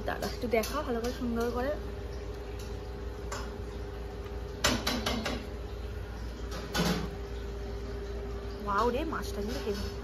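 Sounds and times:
steady background hum: 0.0 - 10.0
clinks on a steel plate: 0.2 - 1.7.

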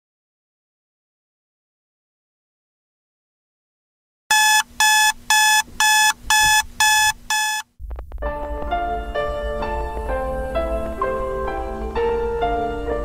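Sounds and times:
phone alarm beeps: 4.3 - 7.6
background music: 8.1 - 13.0.

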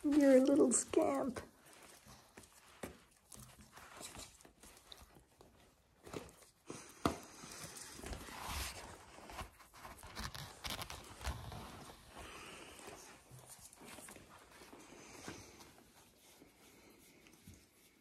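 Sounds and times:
puppies scuffling: 0.0 - 9.9
rustling: 0.0 - 18.0.

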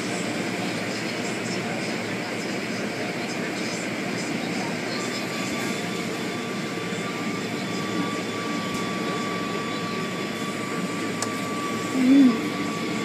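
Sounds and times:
car wash machinery roar: 0.0 - 13.0.

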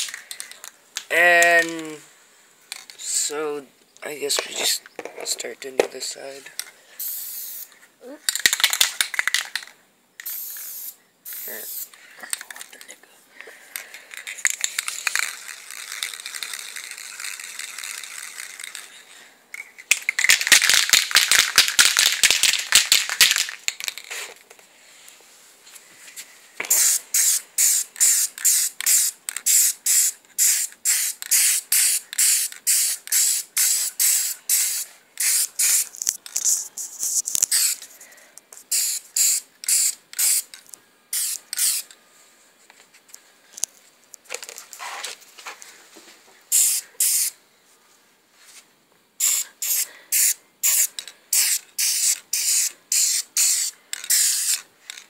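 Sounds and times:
short spray bursts: 7.0 - 7.7, 10.2 - 11.9, 26.7 - 37.8, 38.7 - 40.5, 41.1 - 41.9, 46.5 - 47.4, 49.2 - 54.6
spray can hissing: 7.0 - 7.7, 10.2 - 12.0, 14.4 - 18.9, 26.6 - 37.9, 38.6 - 40.5, 41.1 - 41.9, 46.5 - 47.4, 49.2 - 55.0
spray can mixing ball rattling: 8.3 - 12.6, 14.1 - 18.9, 19.8 - 24.3, 26.6 - 37.9, 38.6 - 41.9, 46.5 - 47.4, 49.2 - 55.0.

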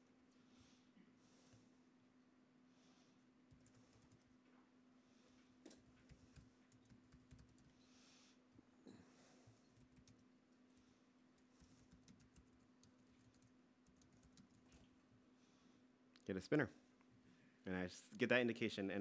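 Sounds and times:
faint laptop keyboard typing: 3.4 - 4.7, 5.6 - 8.7, 9.3 - 15.2.

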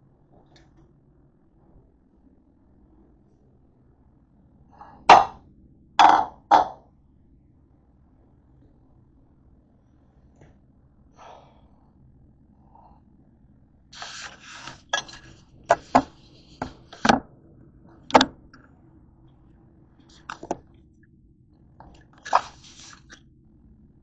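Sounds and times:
scraping or rustling: 14.0 - 17.2, 22.2 - 23.2.

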